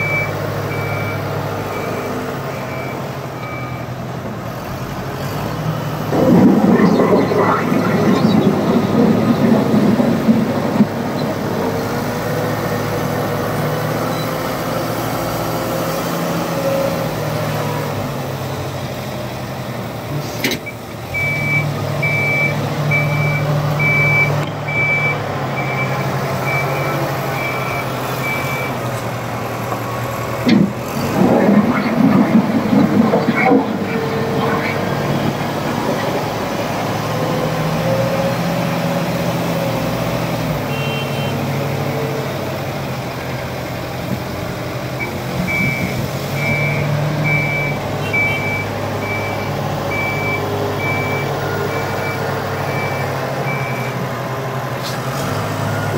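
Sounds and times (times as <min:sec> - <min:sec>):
diesel engine under load: 0:00.0 - 0:55.9
reversing alarm beeping: 0:21.2 - 0:28.8, 0:45.0 - 0:54.0.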